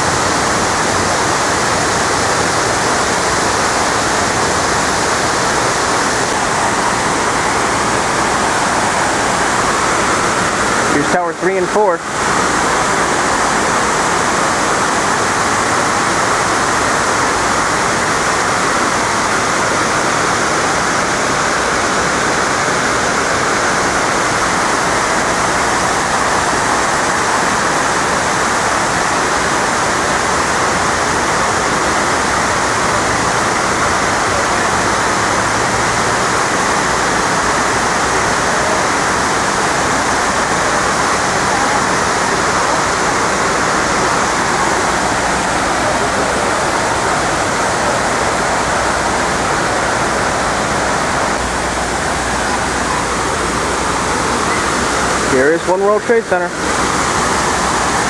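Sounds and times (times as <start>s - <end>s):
water rushing down walls: 0.0s - 58.0s.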